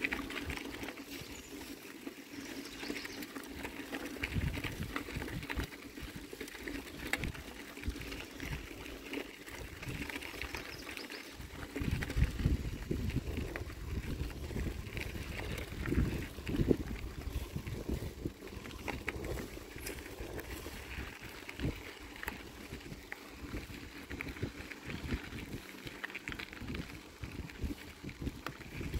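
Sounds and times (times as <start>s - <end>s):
bicycle tyres crunching on gravel: 0.0s - 28.9s
bike rattling over bumps: 0.0s - 28.9s
wind buffeting microphone: 4.2s - 6.2s, 6.9s - 8.9s, 9.5s - 10.8s, 11.4s - 28.9s.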